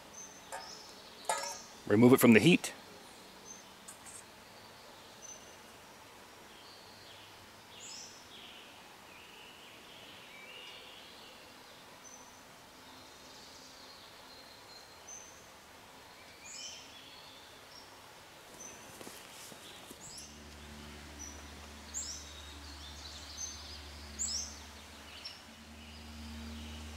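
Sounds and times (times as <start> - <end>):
faint outdoor ambience: 0.0 - 26.9
bird chirping: 0.1 - 5.6, 19.6 - 26.9.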